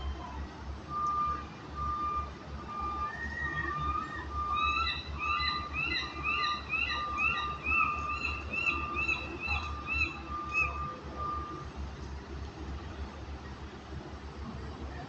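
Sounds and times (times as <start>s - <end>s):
gulls calling: 0.0s - 11.6s
low street rumble: 0.0s - 15.0s
reversing beeper: 0.9s - 11.7s.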